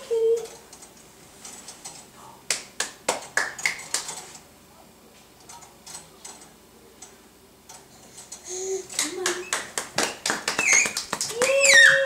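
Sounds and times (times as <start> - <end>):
baby bouncer clicking and creaking: 0.0 - 2.1, 3.2 - 4.4, 5.4 - 7.1, 7.7 - 12.0.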